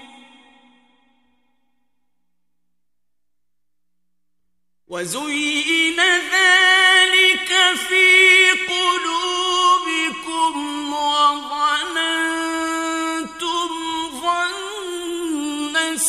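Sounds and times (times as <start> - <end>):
man chanting recitation: 4.9 - 16.0.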